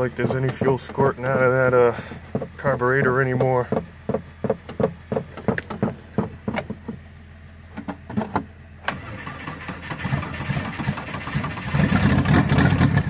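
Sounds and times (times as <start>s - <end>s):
diesel engine running: 0.0s - 13.0s
starter cranking engine: 8.8s - 13.0s.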